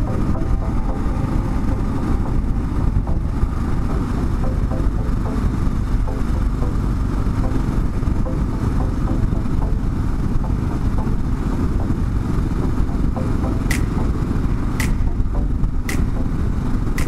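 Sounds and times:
motorcycle engine running: 0.0s - 17.0s
wind rush: 0.0s - 17.0s
sharp click: 13.7s - 14.2s, 14.8s - 15.2s, 15.8s - 16.3s.

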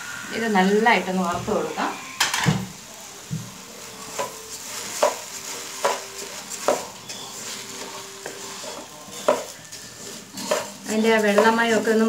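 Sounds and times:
rice sizzling in pan: 0.0s - 12.0s
wooden spatula scraping pan: 3.8s - 12.0s.

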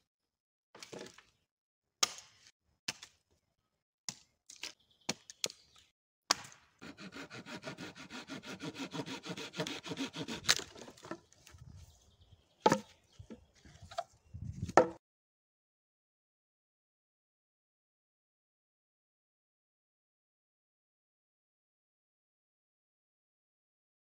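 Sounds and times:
hand saw cutting log: 6.8s - 11.2s.

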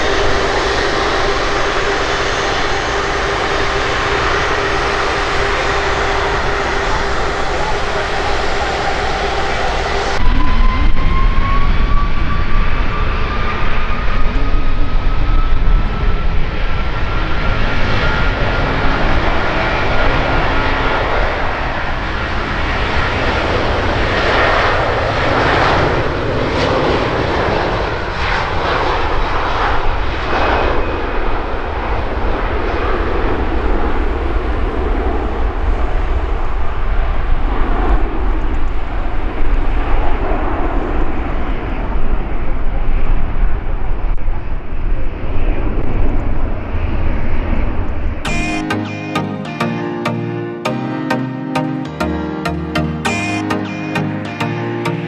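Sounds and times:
jet engine roar: 0.0s - 35.8s
jet engine whine: 0.0s - 48.2s.

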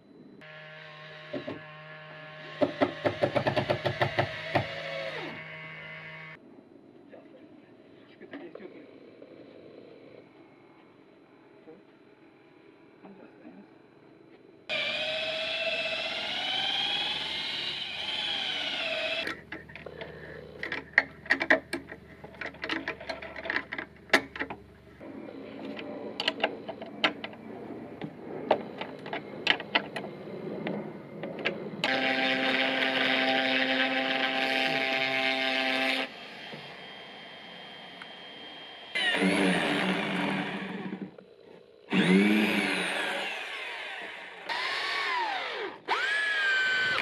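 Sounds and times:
electric router running: 0.4s - 6.4s, 14.7s - 22.0s, 31.8s - 41.2s, 41.9s - 47.0s
cordless drill boring into wood: 2.4s - 5.6s, 14.7s - 19.4s, 31.8s - 41.0s, 41.9s - 47.0s.

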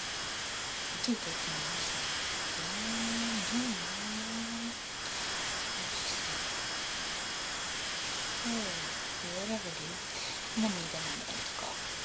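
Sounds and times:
microphone hiss: 0.0s - 12.0s
woman humming: 2.6s - 4.8s, 8.4s - 9.9s.

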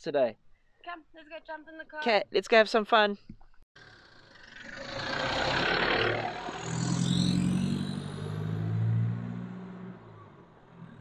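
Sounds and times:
diesel engine drone: 3.8s - 11.0s.

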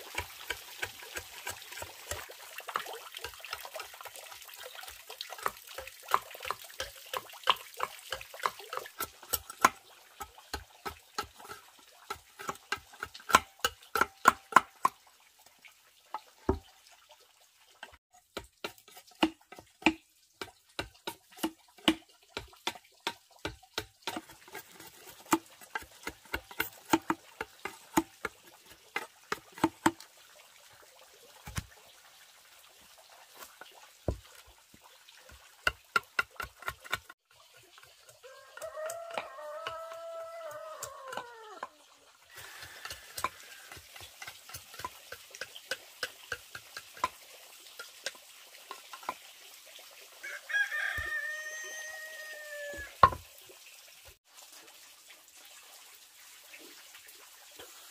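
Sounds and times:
machete chopping bamboo: 18.4s - 24.4s.

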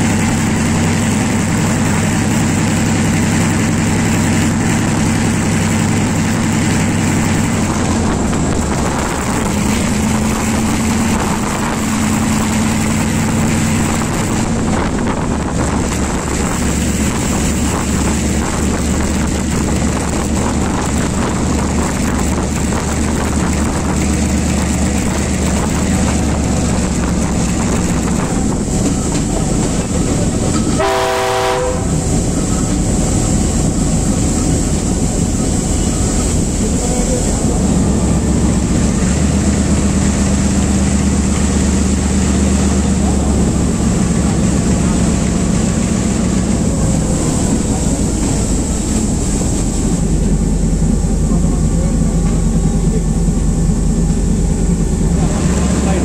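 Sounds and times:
locomotive engine drone: 0.0s - 56.0s
wheels rattling on rails: 0.0s - 56.0s
short horn blast: 30.7s - 32.0s.

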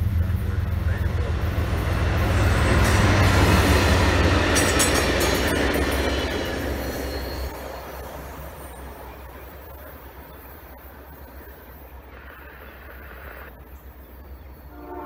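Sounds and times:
wheels clattering over rails: 0.0s - 10.0s
locomotive low drone: 0.0s - 15.0s.

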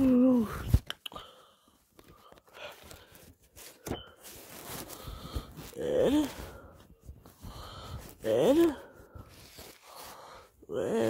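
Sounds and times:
faint rustling: 2.0s - 10.5s.

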